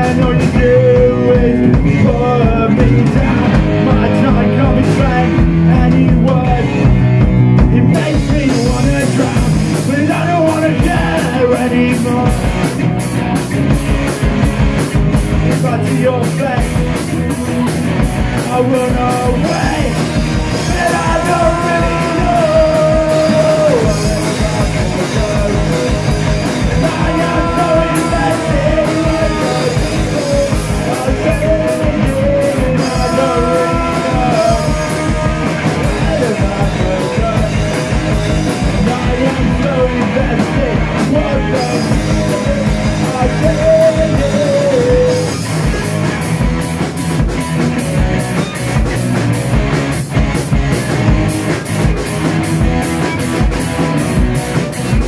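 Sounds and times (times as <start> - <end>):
person singing lead vocal: 0.0 - 12.6, 15.5 - 16.9, 18.4 - 45.5
bass guitar: 0.0 - 55.0
drum kit: 0.0 - 55.0
electric guitars: 0.0 - 55.0.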